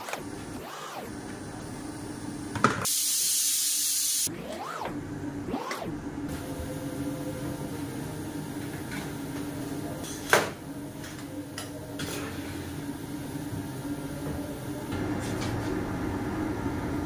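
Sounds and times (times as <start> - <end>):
steady low hum: 4.3 - 17.0.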